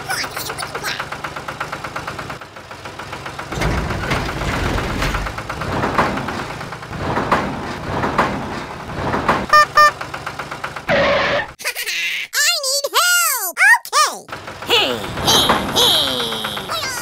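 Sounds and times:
vehicle engine running: 0.0s - 11.6s, 14.3s - 17.0s
short high beeps: 9.5s - 9.9s.

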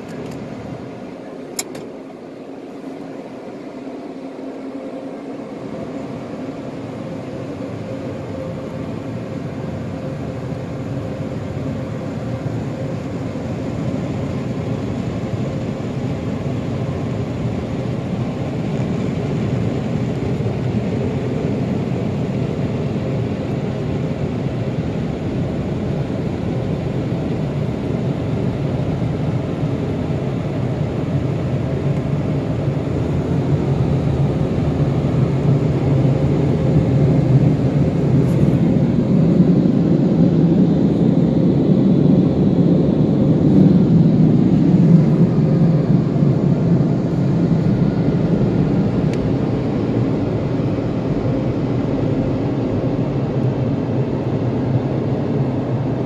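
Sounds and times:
car engine rumble: 0.0s - 56.0s
road noise: 31.6s - 41.2s.

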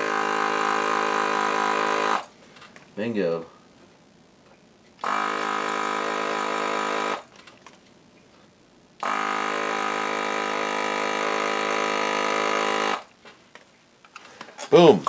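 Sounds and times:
desoldering vacuum pump humming: 0.0s - 2.5s, 3.6s - 7.4s, 8.1s - 14.1s.

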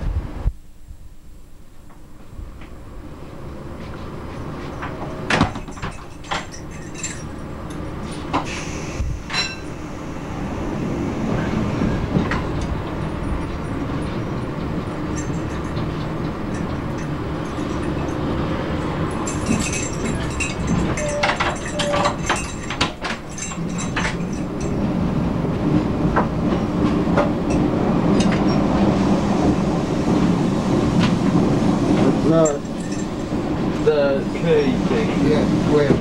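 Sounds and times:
train rumbling: 1.5s - 36.0s
wheels clunking over rail joints: 3.8s - 36.0s
metallic clanking and rattling: 4.6s - 8.5s, 9.2s - 9.8s, 12.1s - 28.8s, 32.4s - 34.0s.

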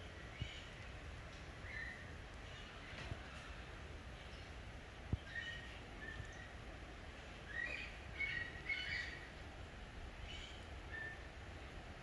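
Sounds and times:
birds chirping: 1.6s - 6.6s, 7.4s - 9.4s.

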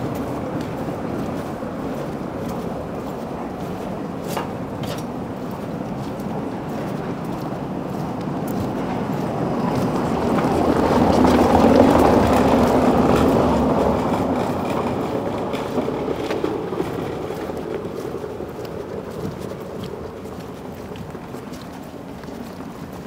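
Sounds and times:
vehicle passing by: 0.0s - 23.0s.

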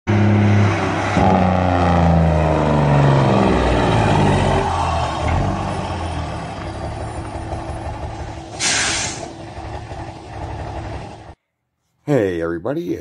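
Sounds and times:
diesel truck engine idling: 2.5s - 11.4s
air brakes hissing: 8.0s - 9.5s.

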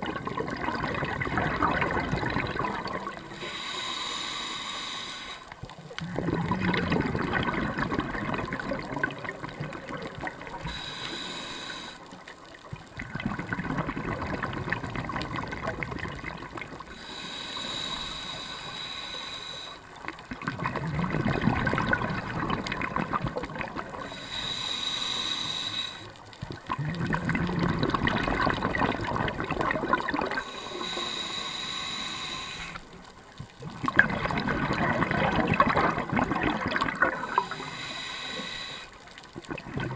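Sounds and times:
bubbling regulator exhalations: 0.0s - 12.0s, 12.8s - 39.9s
hissing regulator inhalations: 3.1s - 5.7s, 10.6s - 12.3s, 16.9s - 20.2s, 24.0s - 26.3s, 30.4s - 33.1s, 37.1s - 39.1s.

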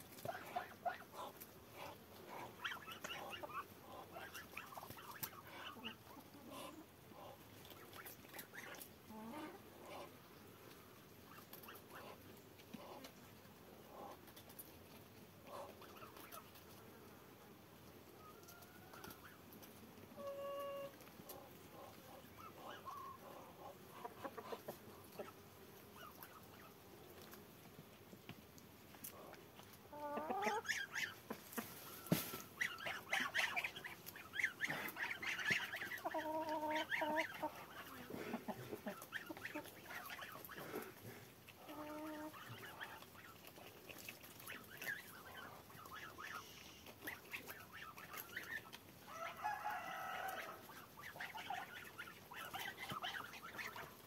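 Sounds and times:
hen clucking softly: 0.0s - 16.9s, 18.2s - 27.4s, 28.9s - 54.0s
beaks pecking at food: 0.1s - 6.8s, 10.6s - 16.8s, 26.0s - 54.0s
soft bird calls: 30.0s - 38.1s.

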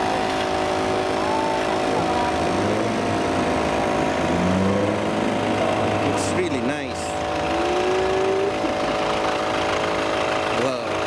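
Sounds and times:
faint voices: 0.0s - 3.2s
engine running: 0.0s - 11.0s.

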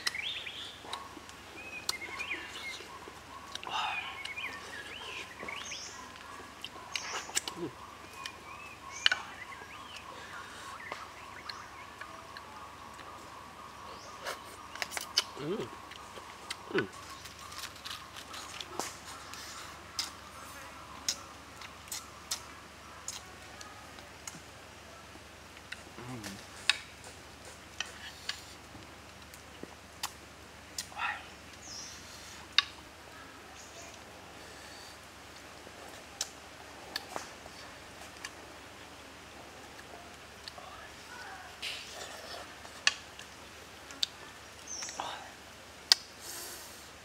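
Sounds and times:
faint bird chirps: 0.0s - 23.9s.

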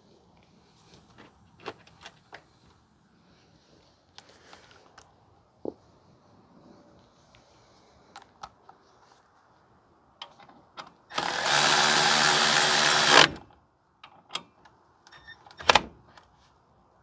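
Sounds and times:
power tool tightening bolt: 11.1s - 13.4s.

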